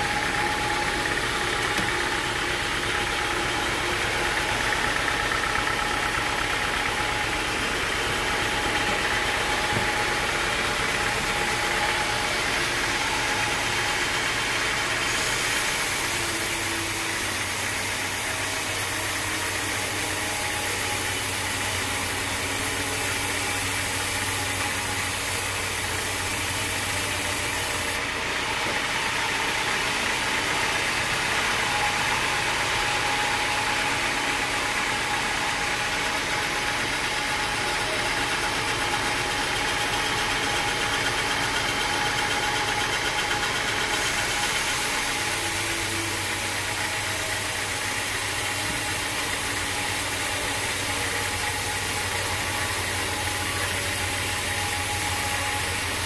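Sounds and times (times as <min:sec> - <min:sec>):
band saw machine drone: 0:00.0 - 0:56.0.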